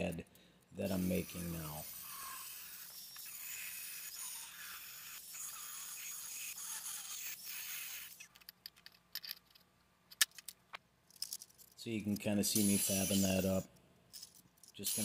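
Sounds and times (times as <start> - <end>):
angle grinder cutting steel: 0.9 - 8.3, 12.5 - 13.6, 14.8 - 15.0.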